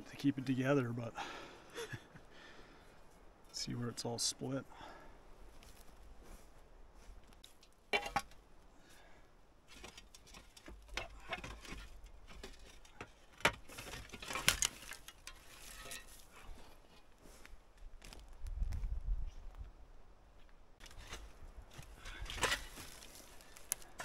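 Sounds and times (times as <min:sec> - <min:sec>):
rustling: 0:09.7 - 0:19.6, 0:20.8 - 0:24.0.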